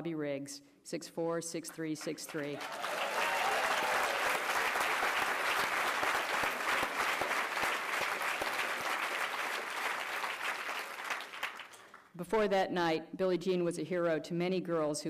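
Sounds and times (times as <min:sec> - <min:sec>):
audience applause: 0:02.5 - 0:12.1.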